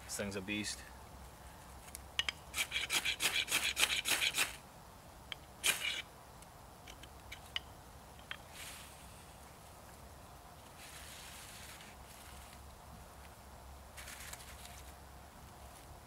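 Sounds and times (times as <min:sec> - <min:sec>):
fire steel rasping strokes: 0:02.5 - 0:04.6, 0:05.6 - 0:06.1.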